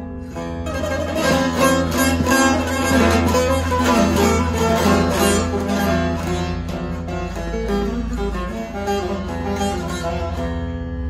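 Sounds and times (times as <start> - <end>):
open strings drone: 0.0 - 11.0
picked and strummed lute: 0.0 - 11.0.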